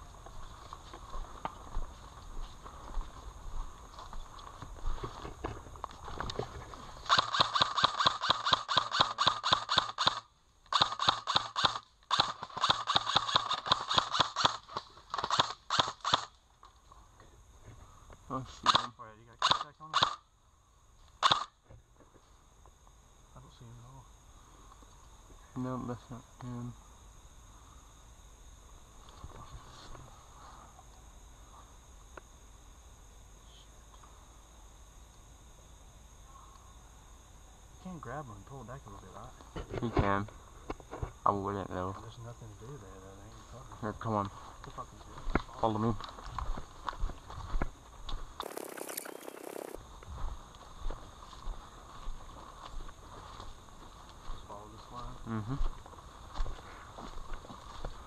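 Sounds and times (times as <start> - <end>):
insects chorus: 0.0 - 58.0
airsoft rifle firing bursts: 7.1 - 16.3.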